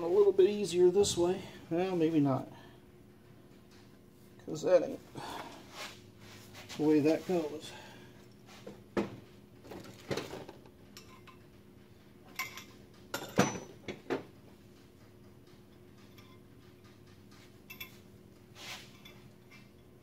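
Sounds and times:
metal brake parts clinking: 0:17.7 - 0:18.0.

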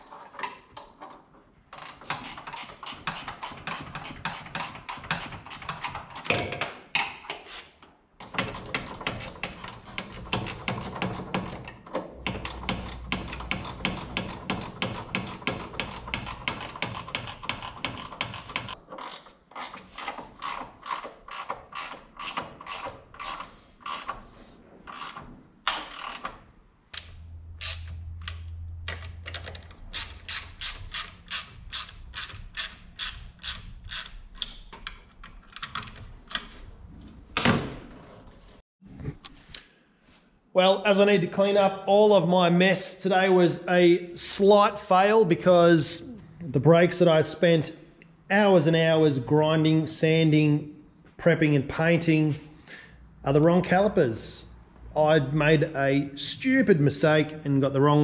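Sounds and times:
socket ratchet clicking: 0:08.3 - 0:24.2, 0:24.9 - 0:26.4, 0:27.0 - 0:36.4.

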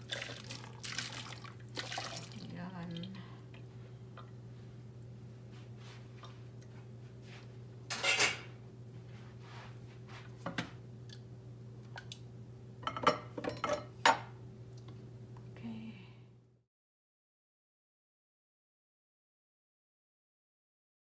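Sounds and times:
steady low hum: 0:00.0 - 0:16.6.

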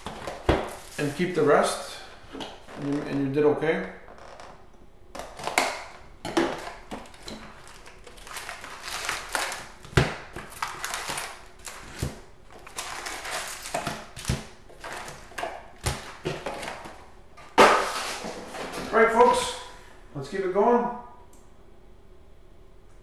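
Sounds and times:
packaging rustling and scraping: 0:00.0 - 0:01.5, 0:06.3 - 0:19.0.

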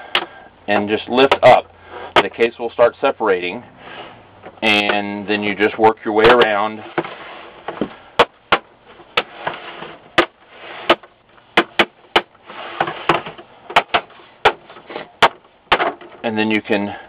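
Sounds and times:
plastic scraping: 0:06.2 - 0:16.3.

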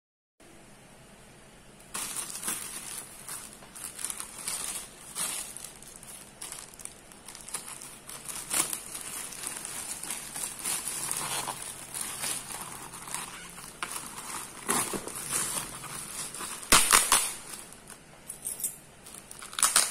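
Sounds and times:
plastic bag crinkling: 0:01.8 - 0:18.0, 0:19.0 - 0:19.9
sharp crackles: 0:01.9 - 0:17.8.

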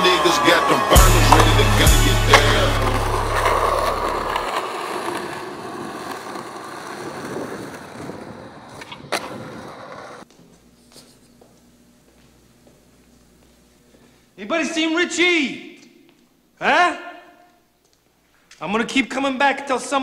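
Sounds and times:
skateboard wheels on asphalt: 0:01.2 - 0:10.5.

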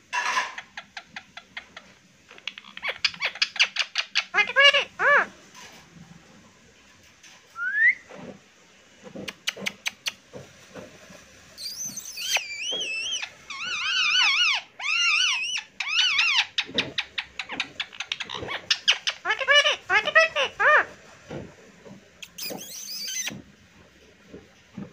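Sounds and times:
parrot warbling calls: 0:02.4 - 0:05.3, 0:11.6 - 0:20.9
parrot rising whistle: 0:07.6 - 0:08.1, 0:11.6 - 0:16.2.

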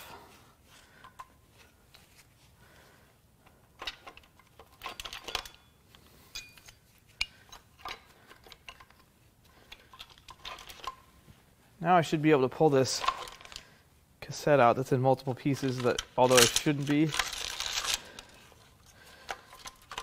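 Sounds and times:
metal gears clinking and rattling: 0:03.8 - 0:05.7, 0:09.7 - 0:11.0.

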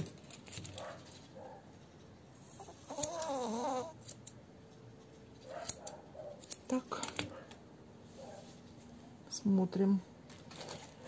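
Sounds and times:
scissors snipping hair: 0:02.6 - 0:04.4, 0:05.4 - 0:07.1.

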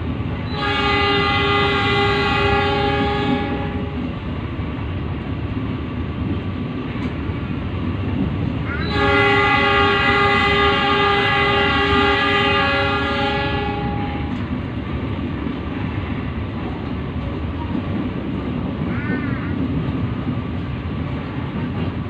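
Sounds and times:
train rumbling on rails: 0:00.0 - 0:22.0
train horn blast: 0:00.5 - 0:04.0, 0:08.7 - 0:14.4.

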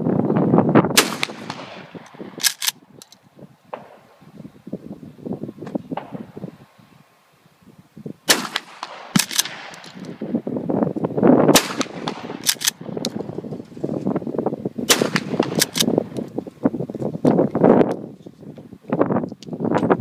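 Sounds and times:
shotgun shots: 0:01.0 - 0:02.7, 0:03.7 - 0:04.2, 0:08.3 - 0:10.2, 0:11.5 - 0:13.1, 0:14.9 - 0:15.9.

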